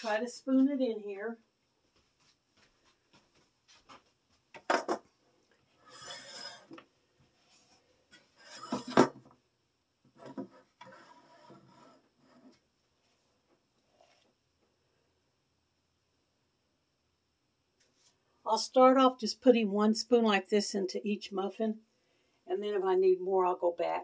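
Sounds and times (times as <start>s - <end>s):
spoon scraping batter: 10.6s - 12.6s.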